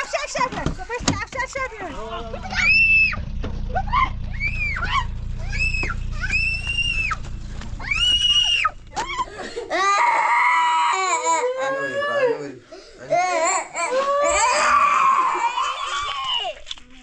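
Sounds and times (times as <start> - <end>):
shrill screams: 2.5 - 7.2, 7.8 - 12.6, 13.8 - 16.6
girl crying and wailing: 7.8 - 12.5, 13.1 - 16.5.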